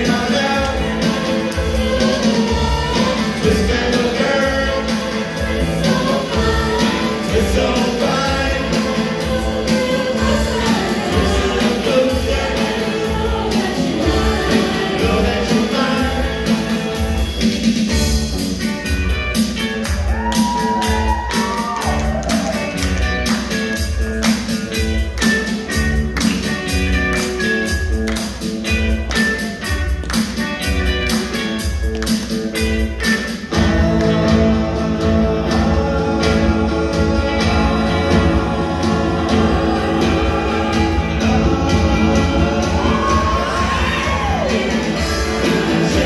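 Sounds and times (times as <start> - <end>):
vocal group singing harmonies: 0.0 - 18.3, 33.2 - 46.0
rock band playing: 0.0 - 46.0.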